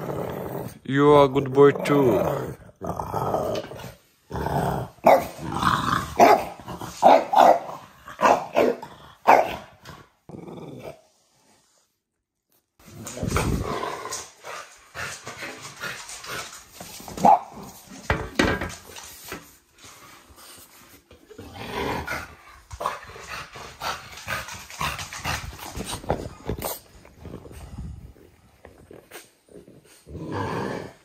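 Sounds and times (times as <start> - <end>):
dog growling: 0.0 - 0.8, 1.7 - 7.0, 7.6 - 11.8, 12.9 - 16.6, 21.3 - 31.0
knocks and rustles: 15.2 - 19.6.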